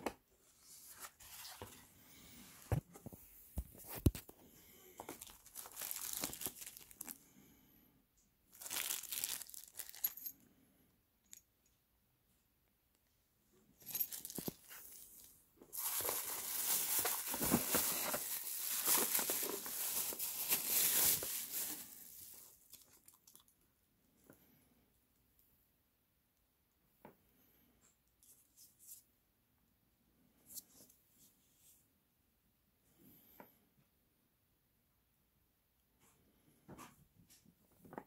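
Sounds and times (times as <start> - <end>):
plastic bag crinkling: 5.0 - 7.2, 8.5 - 10.2, 13.9 - 23.4.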